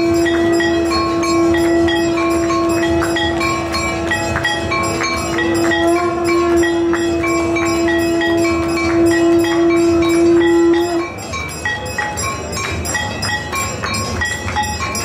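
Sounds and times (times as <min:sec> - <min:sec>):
conch shell blown: 0:00.0 - 0:11.2
temple bells ringing: 0:00.0 - 0:15.0.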